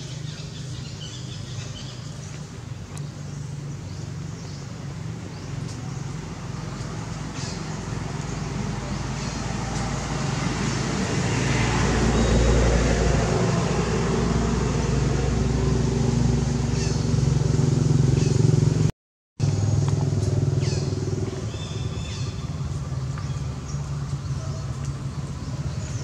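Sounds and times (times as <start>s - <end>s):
vehicle engine running: 13.2s - 26.0s.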